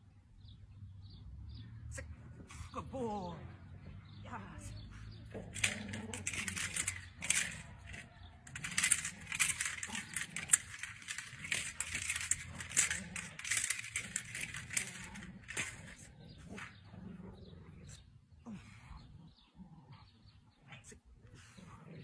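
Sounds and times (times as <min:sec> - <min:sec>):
dog toy rattling and clinking: 0:05.4 - 0:16.8.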